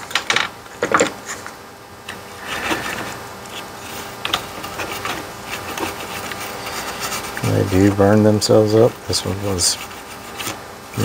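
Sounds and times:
toothbrush scrubbing circuit board: 0:02.4 - 0:08.0, 0:09.1 - 0:11.0.

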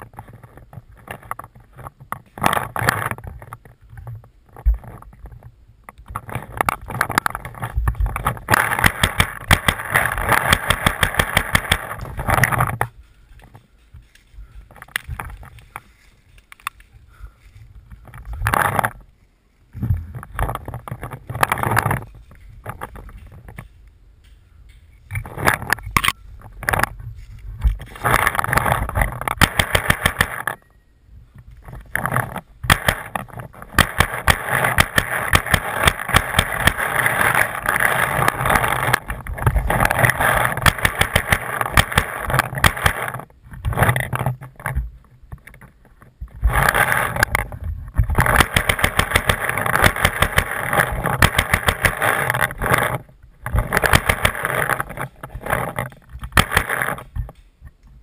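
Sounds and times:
dry leaves and brush crackling: 0:00.0 - 0:57.5
camera handling clatter: 0:48.2 - 0:52.9.

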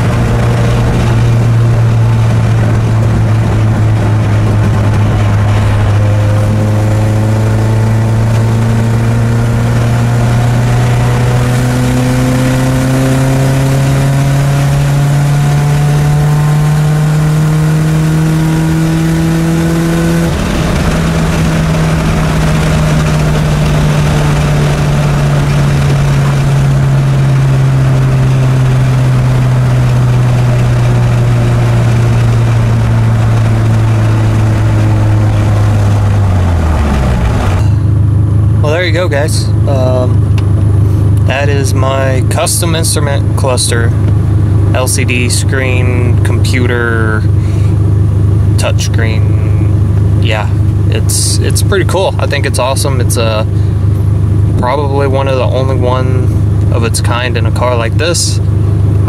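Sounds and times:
car engine accelerating: 0:00.0 - 0:59.0.

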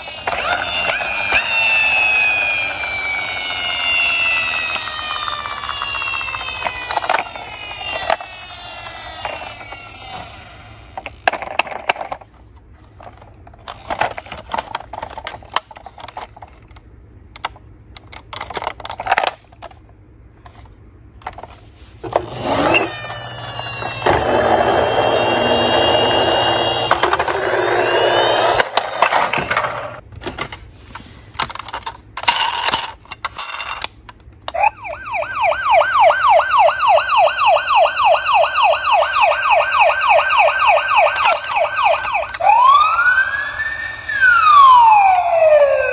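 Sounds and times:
toy siren yelping: 0:00.0 - 0:11.3, 0:22.2 - 0:30.0, 0:34.5 - 0:45.9
plastic toys rattling in box: 0:00.0 - 0:16.8, 0:18.0 - 0:19.8
electronic gliding tones: 0:22.4 - 0:30.0.

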